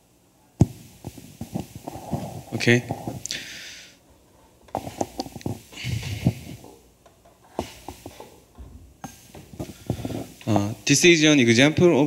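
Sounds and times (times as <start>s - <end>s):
microphone handling knocks: 0.6s - 3.2s, 7.6s - 10.8s
breaths into a microphone: 1.5s - 4.0s, 4.8s - 6.7s, 9.1s - 10.4s.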